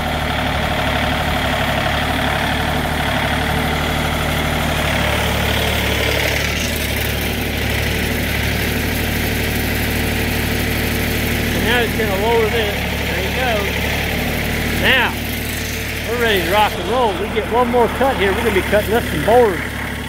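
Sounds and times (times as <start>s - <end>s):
sawmill engine idling: 0.0s - 20.0s
high mechanical whine: 11.4s - 20.0s.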